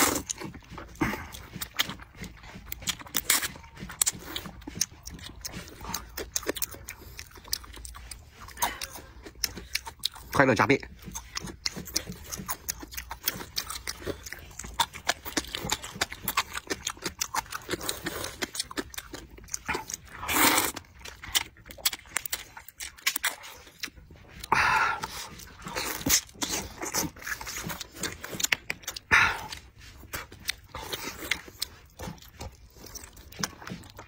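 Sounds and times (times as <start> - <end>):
slurping noodles: 0.0 - 10.4, 11.1 - 34.0
wet chewing: 0.0 - 34.0
lip-smacking clicks: 25.5 - 32.6.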